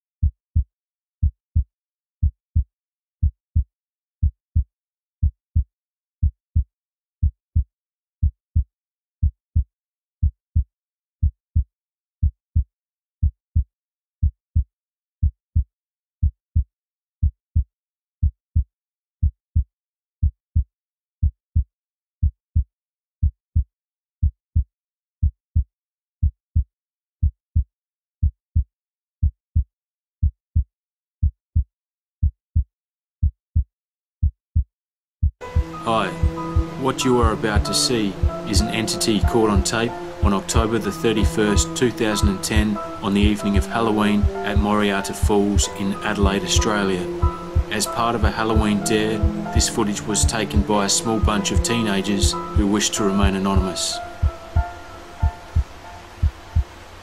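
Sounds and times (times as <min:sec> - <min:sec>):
heartbeat thumps: 0:35.4 - 0:36.8, 0:37.5 - 0:40.8, 0:41.5 - 0:51.4, 0:53.6 - 0:56.8.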